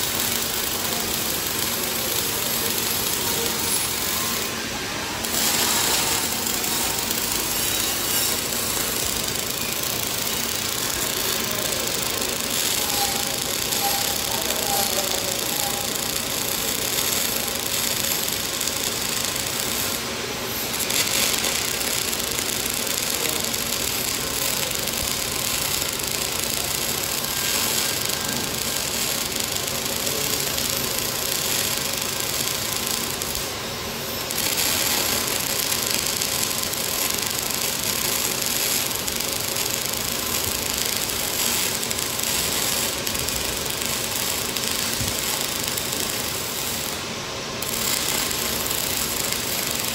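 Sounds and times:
welding arc: 0:00.0 - 0:49.9.

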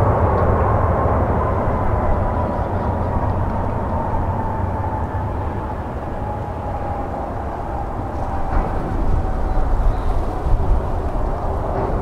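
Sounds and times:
jet engine whine: 0:00.0 - 0:12.0
jet engines rumbling: 0:00.0 - 0:12.0.

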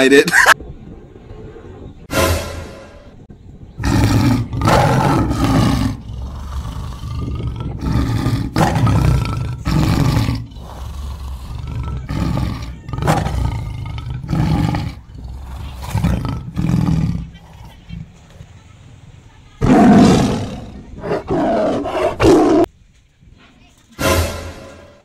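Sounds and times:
tiger roars: 0:03.8 - 0:18.2, 0:19.6 - 0:22.7.

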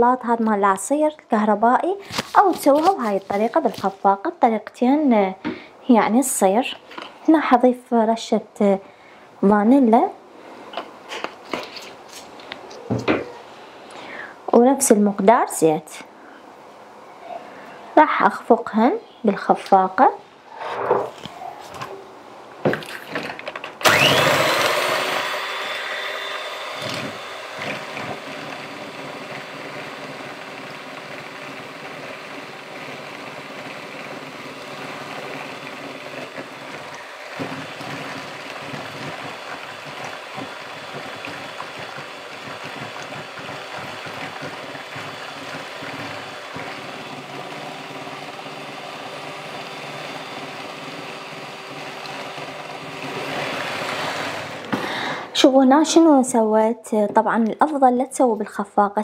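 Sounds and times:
electric hand mixer whine: 0:23.8 - 0:55.1
beaters whisking sauce in bowl: 0:37.4 - 0:46.7.

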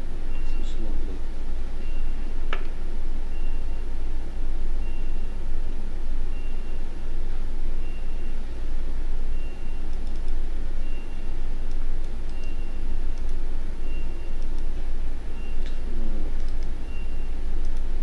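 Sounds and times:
steady low rumble: 0:00.0 - 0:18.0
sharp click: 0:09.9 - 0:10.4, 0:11.7 - 0:13.4, 0:16.4 - 0:16.7.

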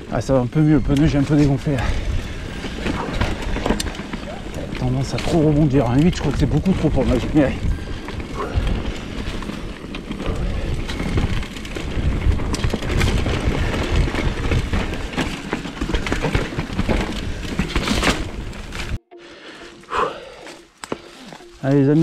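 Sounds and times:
bike rattling over stones: 0:00.0 - 0:19.0
wind rushing over microphone: 0:00.8 - 0:15.3.

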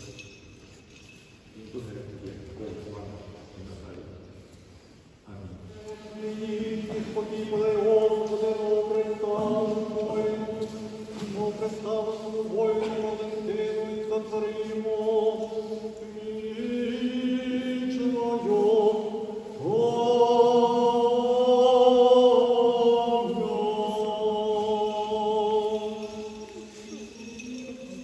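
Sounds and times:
voices chanting slowly: 0:05.6 - 0:27.7.

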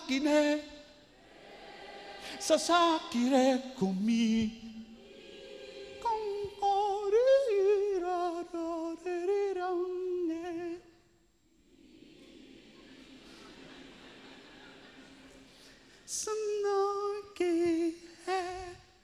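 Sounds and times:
man singing a cappella: 0:00.0 - 0:01.0, 0:02.3 - 0:05.0, 0:06.0 - 0:11.0, 0:16.1 - 0:19.0.

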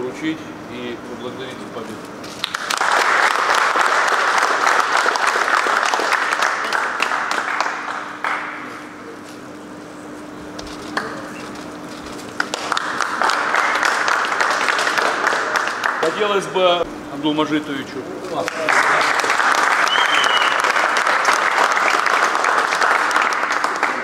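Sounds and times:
people applauding: 0:02.4 - 0:08.8, 0:12.4 - 0:16.5, 0:18.4 - 0:24.0.

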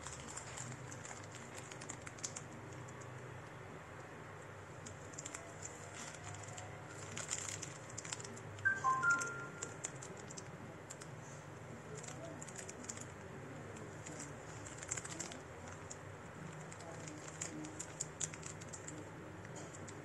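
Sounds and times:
electronic chime: 0:08.7 - 0:09.8.

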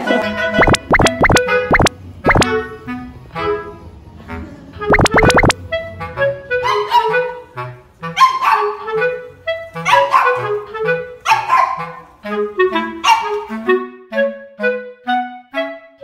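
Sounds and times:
background music with clarinet: 0:04.9 - 0:16.0
small dog barking: 0:08.2 - 0:08.8, 0:09.9 - 0:10.4, 0:11.3 - 0:12.0, 0:13.0 - 0:13.3.

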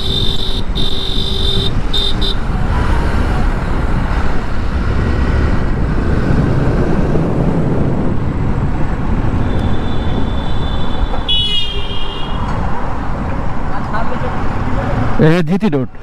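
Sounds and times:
wind and road noise: 0:00.0 - 0:16.0.

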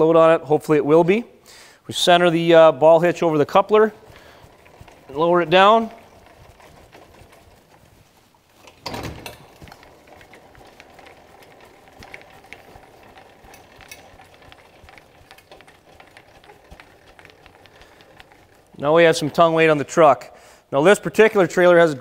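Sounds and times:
jack gearing clicking: 0:02.0 - 0:20.0
metal clunk: 0:08.6 - 0:10.0.

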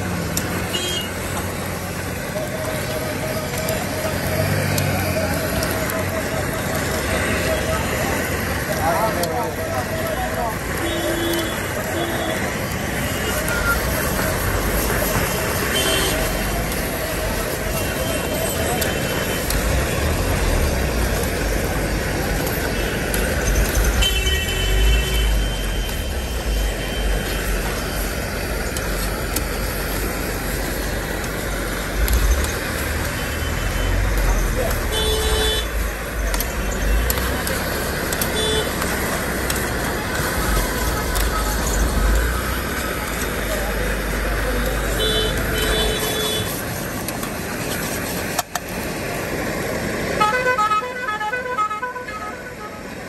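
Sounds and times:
street traffic: 0:00.0 - 0:53.0
vehicle horn tooting: 0:00.7 - 0:01.2, 0:10.8 - 0:13.8, 0:15.6 - 0:16.3, 0:24.0 - 0:25.9, 0:34.8 - 0:35.8, 0:38.2 - 0:38.8, 0:44.9 - 0:46.6, 0:50.2 - 0:52.9.

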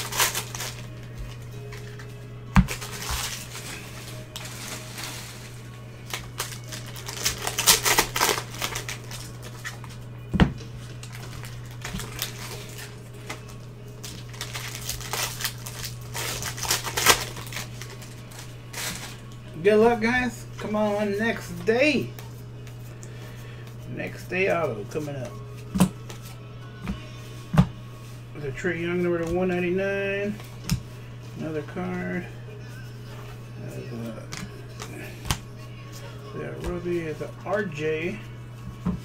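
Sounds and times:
foil wrapper crinkling: 0:00.0 - 0:02.0, 0:02.7 - 0:10.0, 0:10.9 - 0:19.3
cards rustling: 0:00.0 - 0:10.0, 0:10.8 - 0:19.4.

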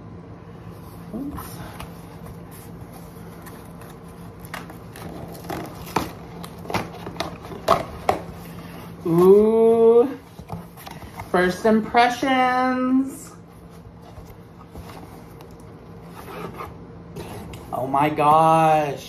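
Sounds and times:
steady low hum: 0:00.0 - 0:19.0
cardboard and tape scraping: 0:01.2 - 0:09.6, 0:13.6 - 0:17.8.

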